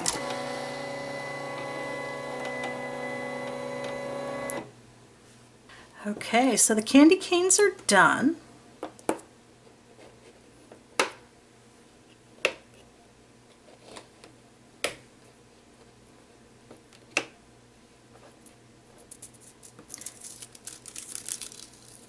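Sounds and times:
foil sheet crinkling: 19.1 - 22.0.

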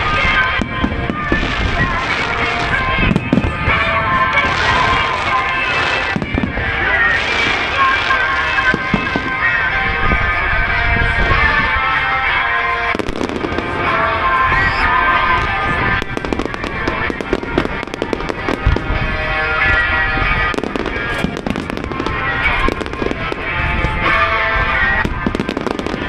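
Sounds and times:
music playing: 0.0 - 26.0.

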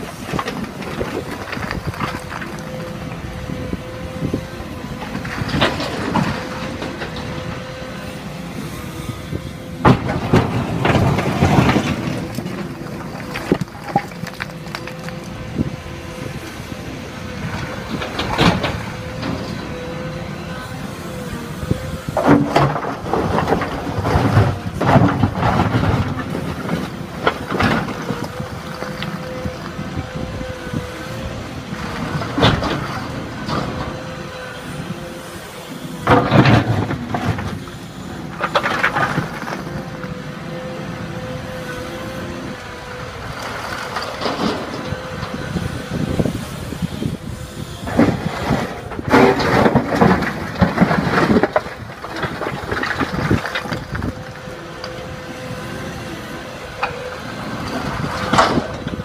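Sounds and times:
excavator engine whine: 0.0 - 59.0
bricks clattering in bucket: 9.9 - 15.2, 38.3 - 39.8, 47.9 - 54.2
bucket scraping bricks: 47.8 - 54.2
bricks clattering against bucket: 47.9 - 54.2.

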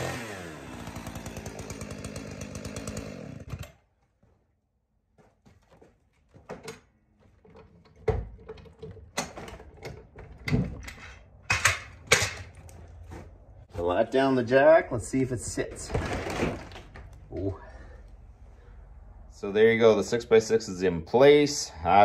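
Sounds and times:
chainsaw running: 0.0 - 3.8.

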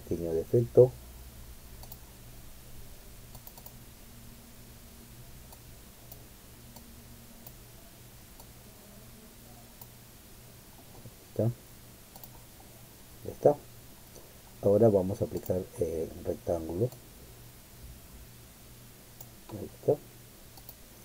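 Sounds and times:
steady low hum: 0.0 - 21.0
computer mouse clicks: 1.8 - 2.0, 3.3 - 3.8, 12.1 - 12.4, 15.3 - 15.6, 19.2 - 19.6, 20.5 - 20.8.

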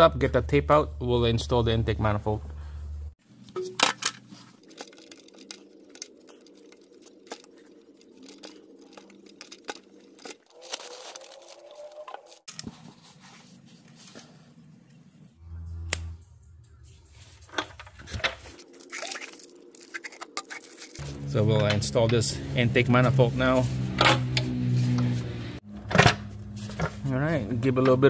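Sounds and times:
plastic parts clicking and rustling: 3.4 - 12.8, 17.5 - 21.0
faint rising tone: 15.4 - 17.2.

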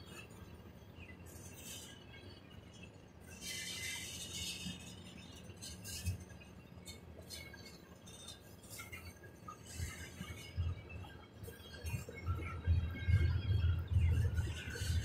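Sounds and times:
train wheels clinking and squeaking: 3.2 - 10.6
freight train rumble: 3.2 - 15.0.

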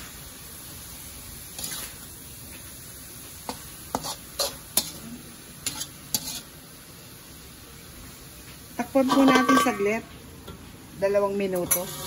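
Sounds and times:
metal spatula scraping a wok: 1.5 - 2.1, 3.4 - 6.6, 8.9 - 10.1, 11.6 - 12.0.

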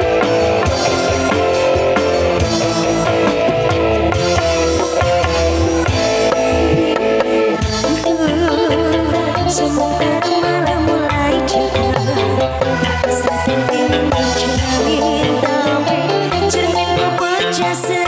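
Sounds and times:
bass: 0.0 - 18.0
hand drum rhythm: 0.0 - 18.0
keyboard melody: 0.0 - 18.0.

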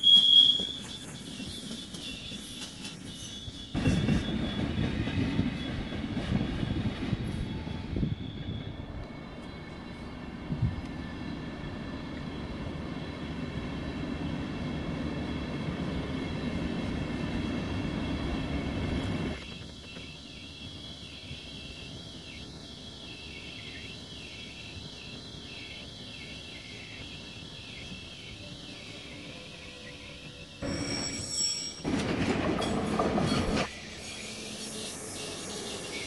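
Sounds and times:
train coaches rumbling past: 0.0 - 36.0
train running hiss: 11.4 - 36.0.

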